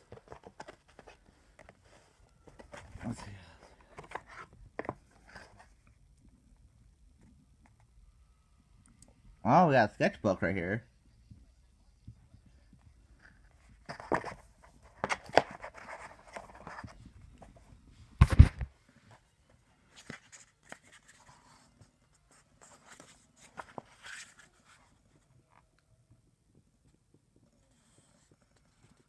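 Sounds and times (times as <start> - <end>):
pages turning: 22.6 - 24.9.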